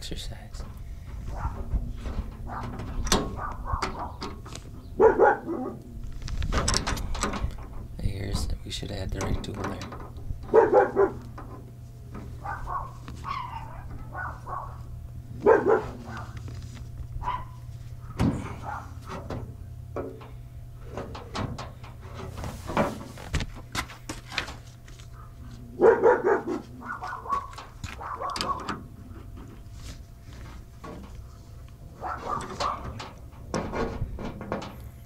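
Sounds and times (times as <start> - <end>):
dogs barking: 1.2 - 1.8, 2.4 - 6.0, 10.4 - 11.4, 12.2 - 16.6, 17.2 - 19.2, 25.1 - 28.9, 31.8 - 33.2.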